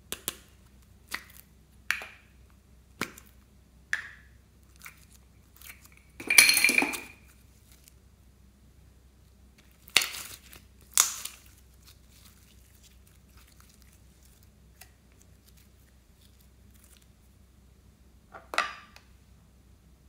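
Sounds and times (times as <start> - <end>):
slime tearing: 9.7 - 17.1.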